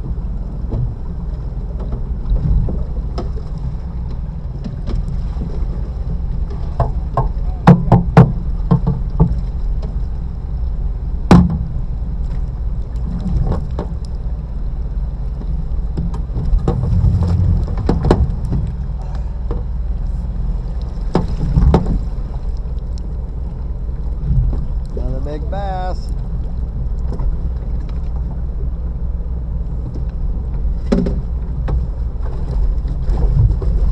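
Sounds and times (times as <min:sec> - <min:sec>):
boat motor droning: 0:00.0 - 0:33.9.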